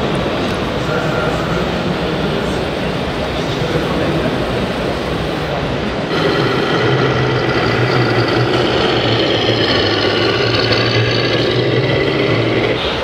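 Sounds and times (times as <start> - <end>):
toy truck motor humming and whining: 6.1 - 13.0.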